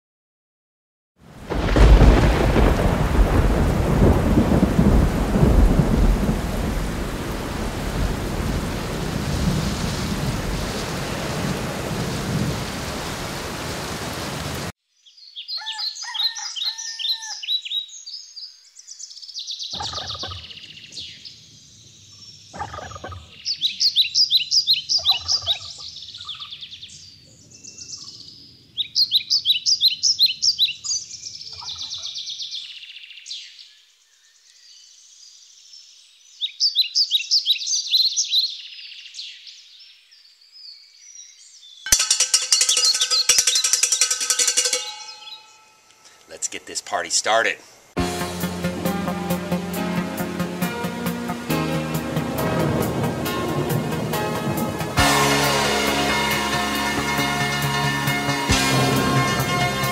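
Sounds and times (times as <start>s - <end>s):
heavy rain: 1.2s - 14.7s, 48.0s - 59.9s
thunder rumbling: 1.4s - 14.7s, 51.2s - 59.9s
birds singing: 15.0s - 47.9s.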